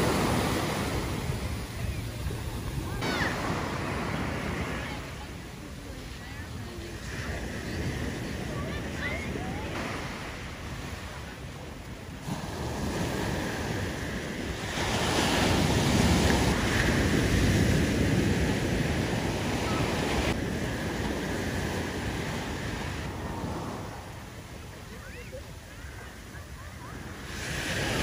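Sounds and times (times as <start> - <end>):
wind buffeting microphone: 0.0 - 25.2
ocean surf washing up beach: 0.0 - 28.0.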